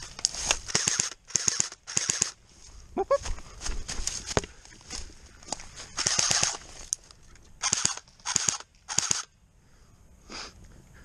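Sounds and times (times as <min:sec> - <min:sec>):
airsoft rifle firing bursts: 0:00.7 - 0:02.4, 0:06.0 - 0:06.6, 0:07.6 - 0:09.3.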